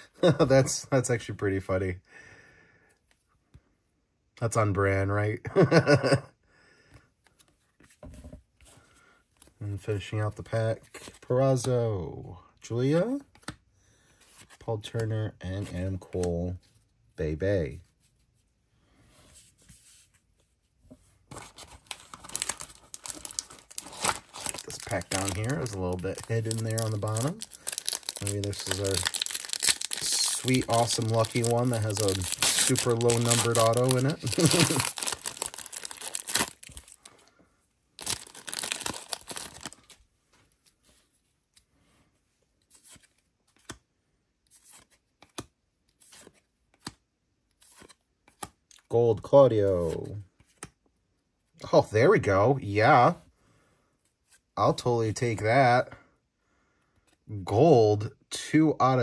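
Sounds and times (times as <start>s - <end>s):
foil wrappers crinkling: 21.8s - 37.1s, 38.0s - 40.0s
cards clicking and snapping: 42.7s - 43.8s, 44.6s - 47.0s, 50.4s - 50.8s.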